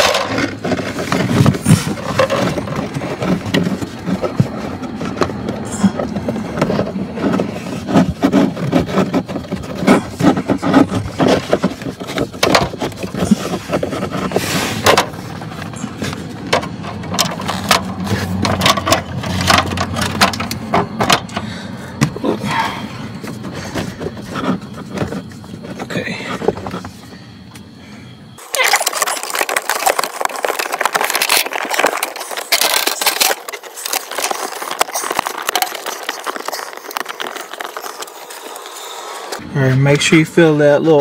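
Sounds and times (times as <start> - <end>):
air filter rustling against plastic: 0.0 - 27.6, 28.4 - 41.0.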